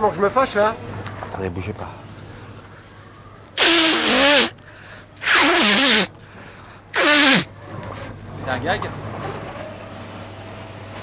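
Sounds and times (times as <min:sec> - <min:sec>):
man blowing his nose: 0:03.6 - 0:04.6, 0:05.2 - 0:06.1, 0:06.9 - 0:07.5.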